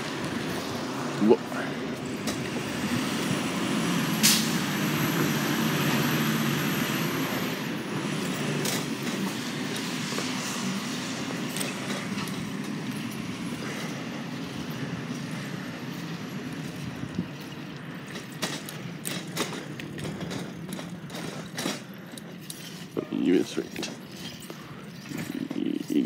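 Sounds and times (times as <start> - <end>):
diesel truck engine running: 0.0 - 26.0
air brake hiss: 4.2 - 4.6.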